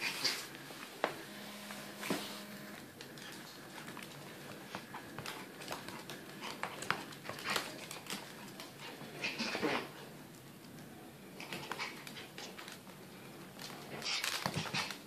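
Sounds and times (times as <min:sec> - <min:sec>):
dogs scuffling: 0:02.0 - 0:10.4.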